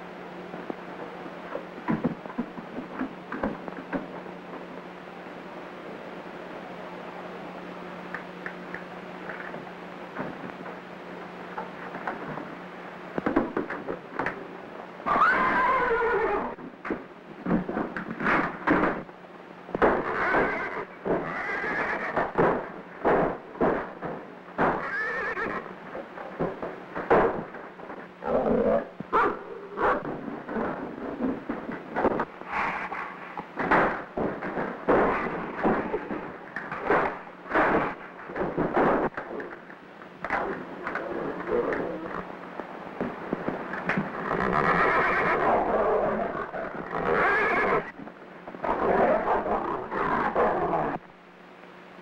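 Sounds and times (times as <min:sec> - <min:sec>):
horse whinnying: 0:15.1 - 0:16.6, 0:20.0 - 0:22.4, 0:24.6 - 0:25.7, 0:44.3 - 0:48.0.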